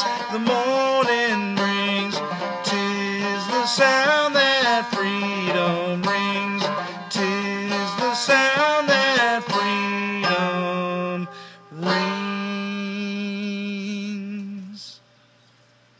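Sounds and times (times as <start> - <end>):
clawhammer banjo plucking: 0.0 - 14.3
man singing folk song: 0.0 - 15.1.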